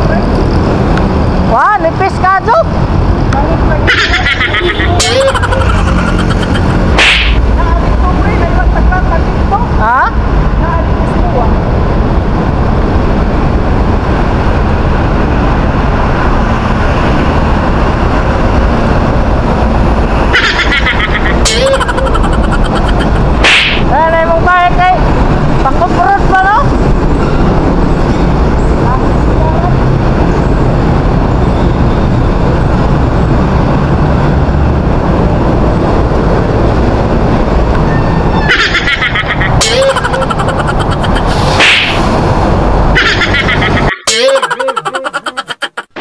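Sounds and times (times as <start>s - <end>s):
road noise: 0.0s - 46.0s
wind buffeting microphone: 22.0s - 38.5s.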